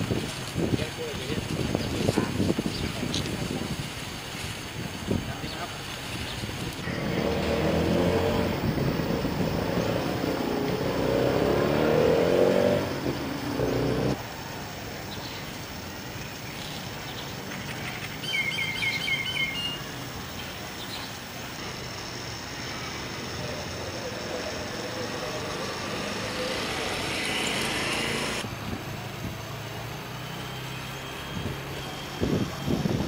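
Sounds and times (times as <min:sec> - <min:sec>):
vehicle engine passing: 0:06.8 - 0:14.4, 0:21.6 - 0:29.1
bird chirping: 0:16.2 - 0:21.2.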